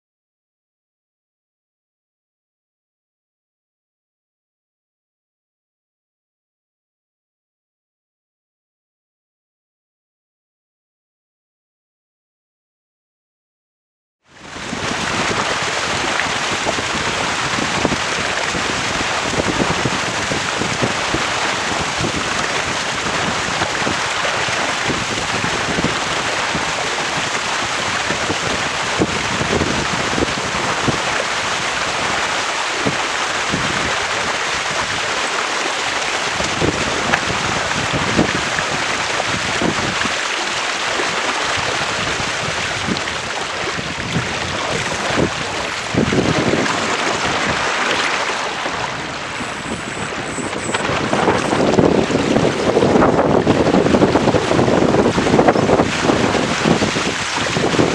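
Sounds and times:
water rushing off boat hull: 0:14.3 - 0:57.9
wind buffeting microphone: 0:14.4 - 0:57.9.

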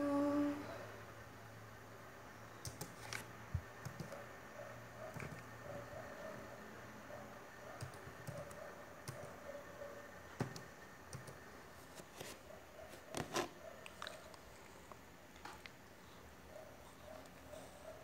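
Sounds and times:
faint steady hum: 0:00.0 - 0:18.0
keyboard keys clicking: 0:03.8 - 0:04.2, 0:07.8 - 0:09.3, 0:10.4 - 0:11.4.

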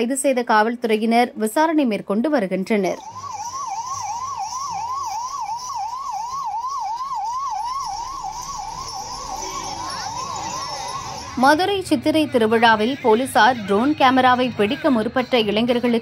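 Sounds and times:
ambulance siren yelping: 0:03.0 - 0:11.7.

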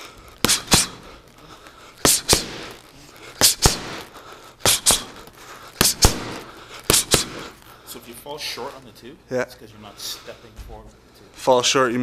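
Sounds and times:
punches smacking focus mitts: 0:00.0 - 0:07.6.

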